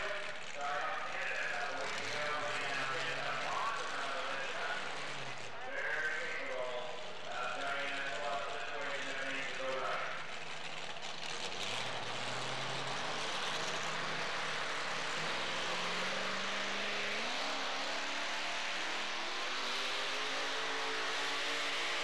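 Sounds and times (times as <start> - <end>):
truck engine revving: 0.0 - 22.0.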